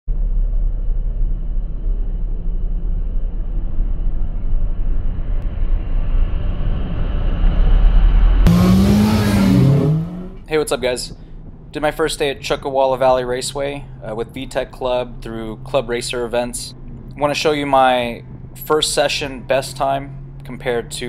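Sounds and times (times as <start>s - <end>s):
low rumble of car engines: 0.1s - 21.0s
car engine accelerating from inside: 6.3s - 10.6s, 13.8s - 21.0s.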